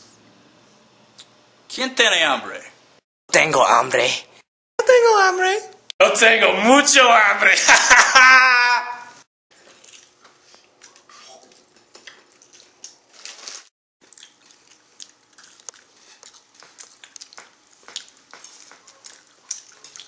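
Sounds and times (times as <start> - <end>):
crunching and chewing food: 9.5 - 20.0.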